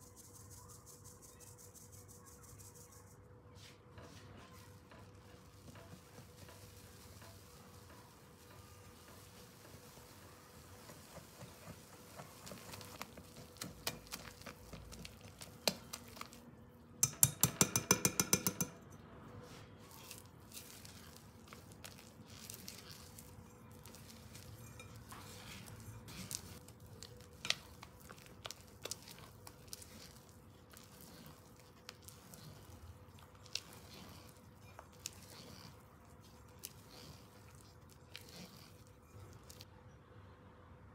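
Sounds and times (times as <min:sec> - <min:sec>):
fork scraping batter in bowl: 0:03.6 - 0:39.7
loud whisk taps: 0:17.0 - 0:18.8
whisk clicking against glass bowl: 0:17.0 - 0:18.9.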